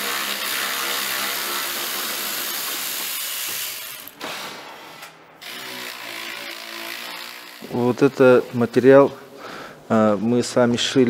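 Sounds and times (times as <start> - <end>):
cordless drill running: 0.0 - 4.7, 5.4 - 7.8.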